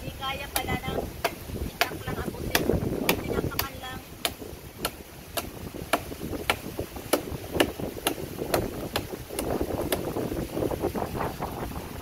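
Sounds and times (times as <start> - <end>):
machete chopping into trunk: 0.6 - 10.1.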